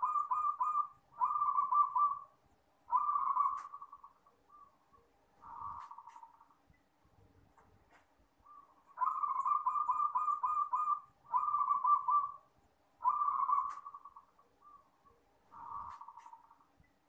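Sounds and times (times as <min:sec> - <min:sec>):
dove cooing: 0:00.0 - 0:02.3, 0:02.9 - 0:04.8, 0:05.4 - 0:06.3, 0:08.5 - 0:12.4, 0:13.0 - 0:14.8, 0:15.5 - 0:16.5.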